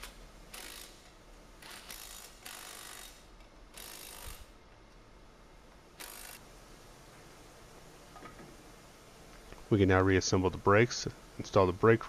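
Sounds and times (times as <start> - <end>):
electric ratchet running: 0.0 - 4.5, 6.0 - 6.4.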